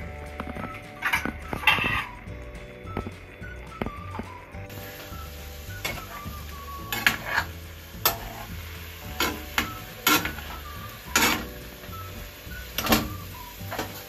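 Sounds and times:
fish sizzling: 0.0s - 14.0s
metal spoon scraping steel pan: 6.9s - 8.6s, 9.2s - 11.5s.

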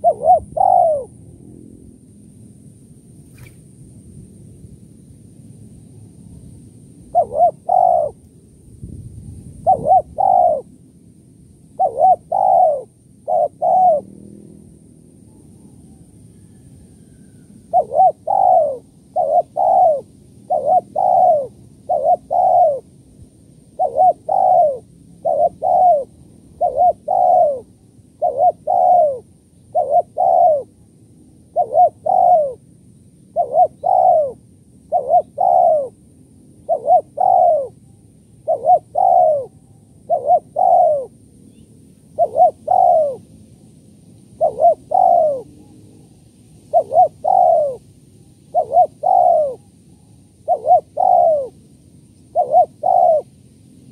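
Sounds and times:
dove cooing: 0.0s - 1.2s, 7.1s - 8.2s, 9.5s - 10.7s, 11.7s - 14.5s, 15.2s - 22.9s, 23.7s - 30.8s, 31.4s - 32.6s, 33.3s - 36.0s, 36.6s - 43.3s, 44.4s - 47.8s, 48.5s - 51.6s, 52.3s - 53.4s.

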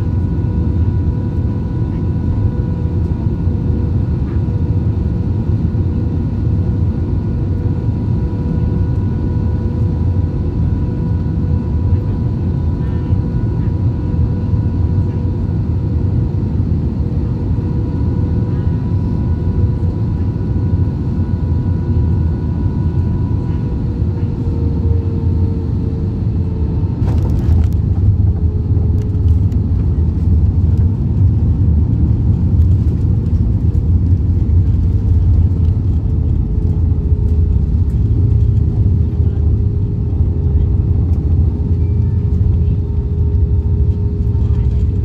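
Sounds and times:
jet engines and airflow rumble: 0.0s - 45.0s
runway rolling rumble: 26.7s - 45.0s.

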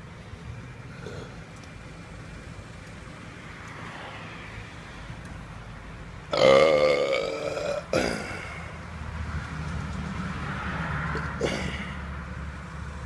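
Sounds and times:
man belching: 6.3s - 8.6s, 11.2s - 12.0s.

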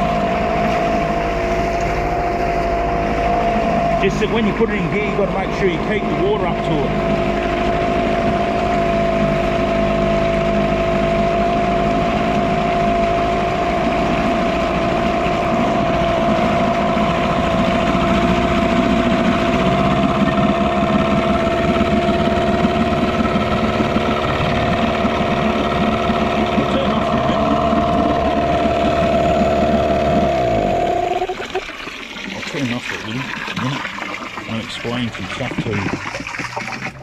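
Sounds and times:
outboard motor running: 0.0s - 37.0s
water churning: 0.0s - 37.0s.

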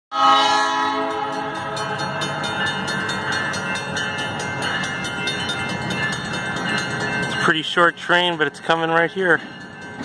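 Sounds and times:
train horn: 0.1s - 1.8s
crossing bell ringing: 0.1s - 10.0s.

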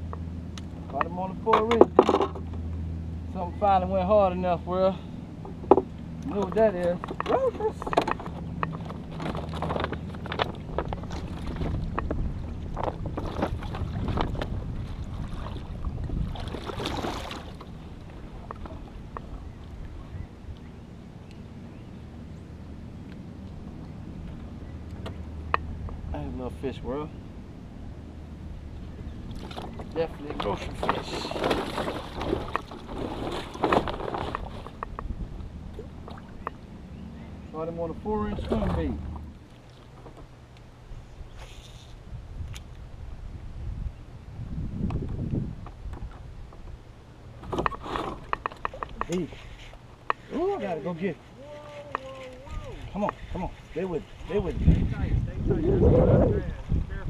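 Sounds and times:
wind rumble on microphone: 0.0s - 39.4s, 40.0s - 49.6s, 51.4s - 57.0s
knocks and taps in boat: 0.9s - 2.6s, 5.4s - 14.6s, 29.3s - 36.6s, 38.2s - 39.3s, 47.4s - 49.3s.

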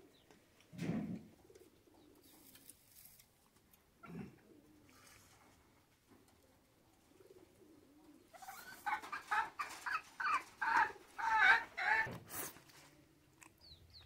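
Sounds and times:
chicken clucking: 6.2s - 12.9s.

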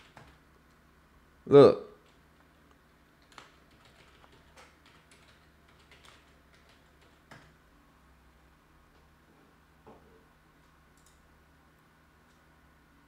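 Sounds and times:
faint keyboard typing: 0.0s - 0.8s, 2.0s - 7.6s, 10.0s - 11.3s.

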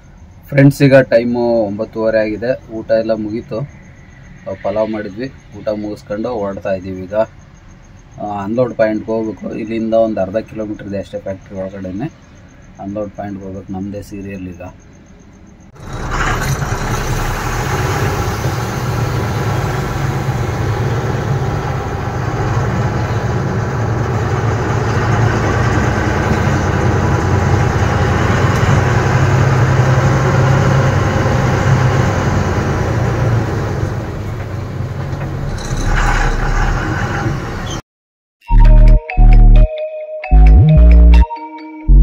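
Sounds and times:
truck diesel engine from cab: 15.6s - 37.8s.

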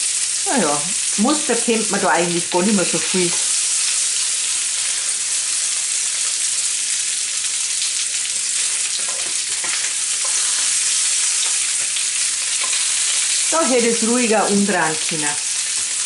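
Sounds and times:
patties sizzling in a pan: 0.0s - 16.0s
spatulas tapping and scraping pan: 9.0s - 11.9s, 12.5s - 13.2s.

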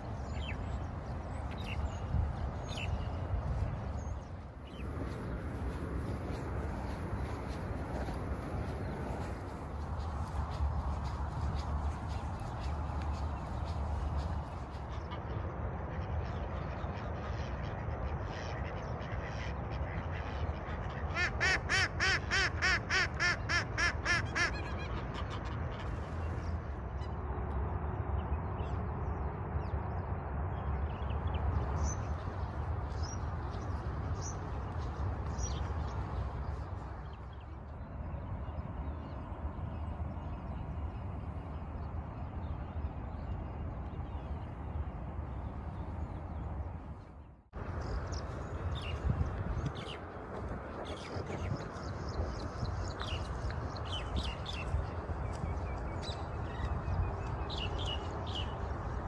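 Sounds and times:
steady low rumble: 0.0s - 22.3s, 24.5s - 59.0s
ducks quacking: 15.9s - 26.0s.

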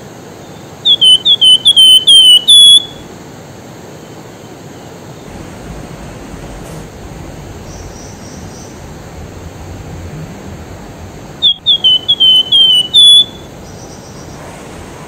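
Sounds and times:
bird whistling song: 0.9s - 3.0s, 7.0s - 14.4s
river rushing: 5.2s - 15.0s.

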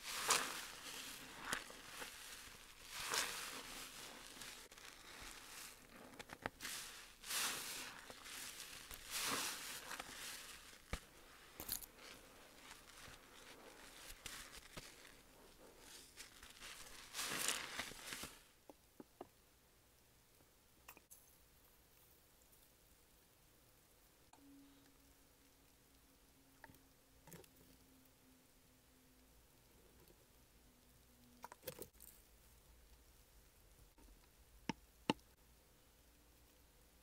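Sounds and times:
sponge squelching in soap foam: 0.0s - 18.4s
crackling suds: 0.0s - 18.6s.

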